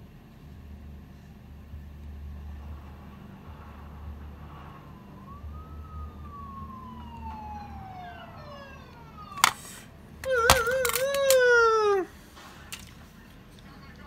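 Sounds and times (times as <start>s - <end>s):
siren wailing: 3.4s - 12.1s.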